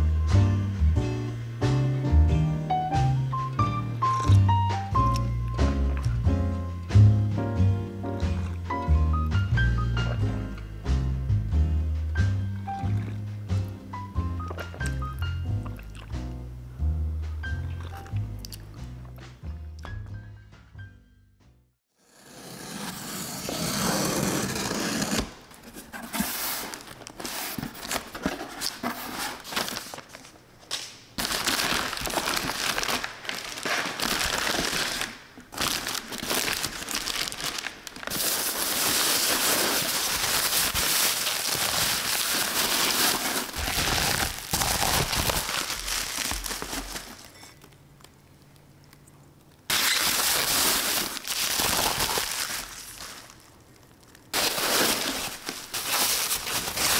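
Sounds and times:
packaging crinkling and rustling: 0:24.1 - 0:48.6, 0:49.7 - 0:56.9.

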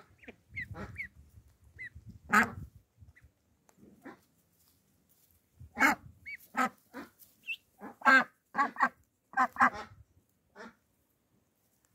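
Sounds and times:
ducks calling: 0:00.0 - 0:03.3, 0:05.8 - 0:10.0.

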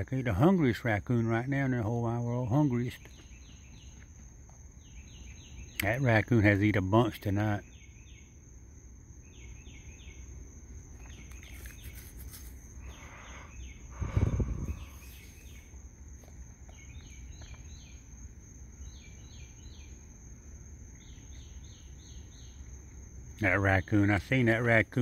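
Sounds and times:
high insect chirps: 0:00.0 - 0:25.0
insects trilling: 0:00.0 - 0:25.0
rustling: 0:11.0 - 0:12.9.

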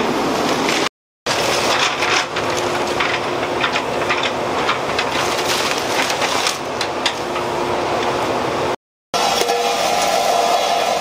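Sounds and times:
wood and metal cracking and crunching: 0:01.3 - 0:07.3.

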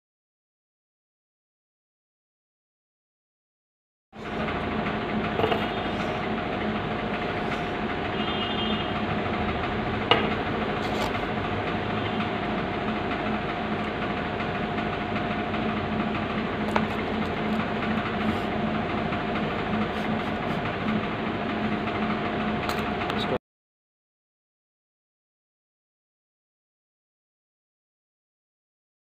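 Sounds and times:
steady mechanical hum: 0:04.2 - 0:23.4.

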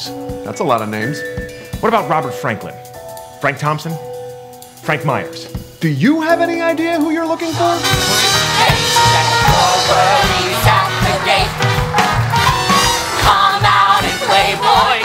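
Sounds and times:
band playing show tune: 0:00.0 - 0:15.0
drum beat: 0:07.0 - 0:15.0
voices singing: 0:07.5 - 0:15.0.

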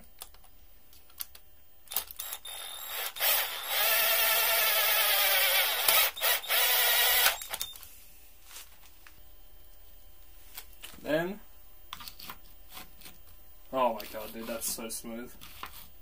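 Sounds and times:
cordless drill whining: 0:02.2 - 0:07.7.

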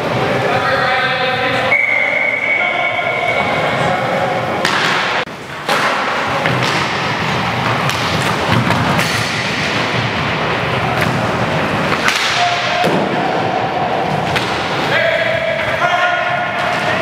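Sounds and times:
sticks and puck clacking: 0:04.6 - 0:13.4, 0:14.0 - 0:17.0
skates rumbling on wooden floor: 0:05.6 - 0:12.1.

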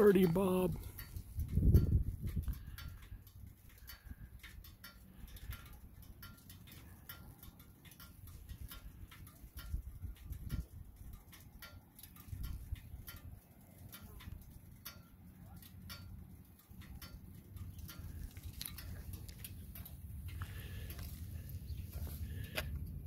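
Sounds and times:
light ticks and clicks: 0:00.0 - 0:23.0
wind rumble on microphone: 0:00.7 - 0:06.1, 0:08.2 - 0:11.4, 0:12.2 - 0:13.4.

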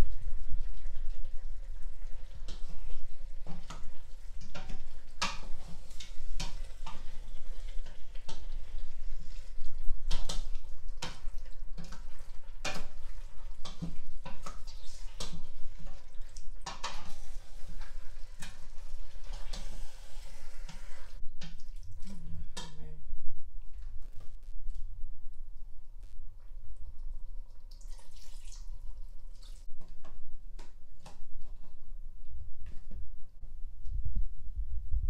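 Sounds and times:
wet squelching of stirred stew: 0:00.1 - 0:22.7
spatula scraping a metal pot: 0:12.0 - 0:21.2.

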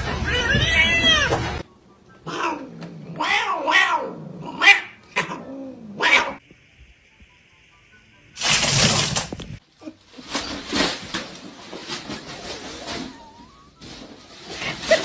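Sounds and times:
cat yowling: 0:00.2 - 0:01.4, 0:02.2 - 0:06.4.

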